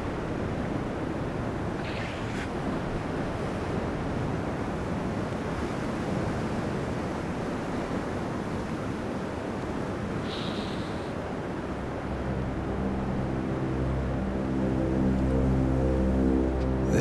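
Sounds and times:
waves breaking: 0.0s - 12.0s
wind: 0.0s - 17.0s.

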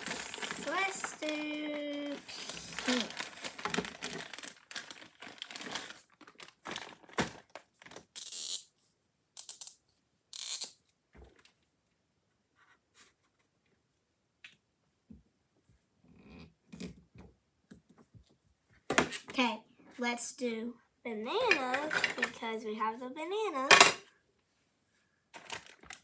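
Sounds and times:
plastic bag crinkling: 0.0s - 8.2s, 25.4s - 26.0s.

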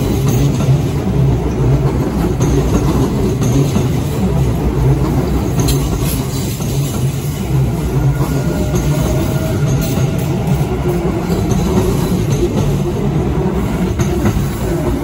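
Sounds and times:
electric train rumbling on rails: 0.0s - 15.0s.

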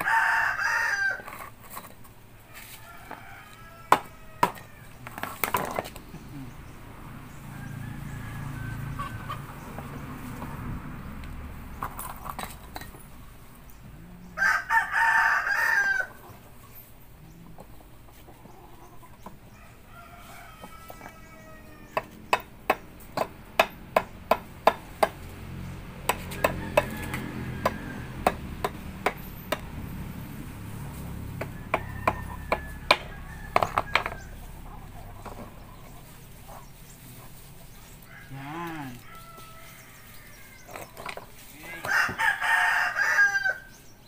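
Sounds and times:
rooster crowing: 0.0s - 1.4s, 2.5s - 5.0s, 7.3s - 9.5s, 14.3s - 16.4s, 19.5s - 22.2s, 26.3s - 28.4s, 31.3s - 34.6s, 38.0s - 40.8s, 41.6s - 43.8s.

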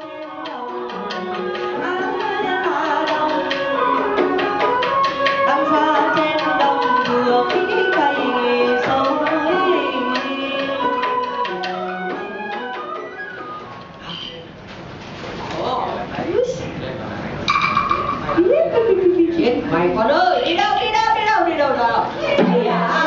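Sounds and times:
person singing: 0.0s - 13.6s
hand drum and percussion: 0.0s - 13.9s, 17.5s - 18.5s, 22.2s - 23.0s
sliding pitched melody: 0.0s - 14.4s.

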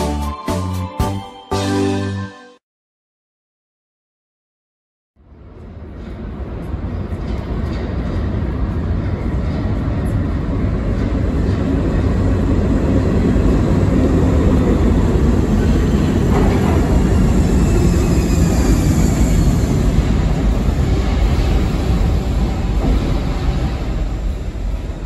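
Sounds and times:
train wheels rumbling on rail: 5.3s - 25.0s
train wheel squeal: 15.4s - 24.4s.

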